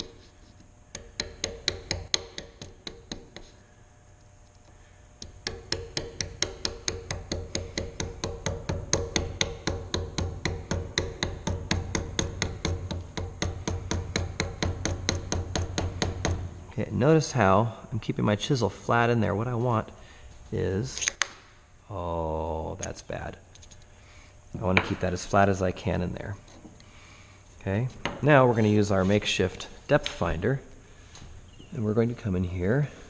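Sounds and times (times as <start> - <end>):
mallet tapping a chisel: 0.9 - 3.5, 5.2 - 16.4.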